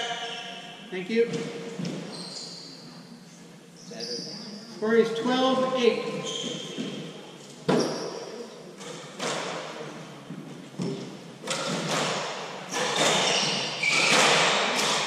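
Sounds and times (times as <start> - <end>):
squash ball struck by rackets: 10.8 - 13.2.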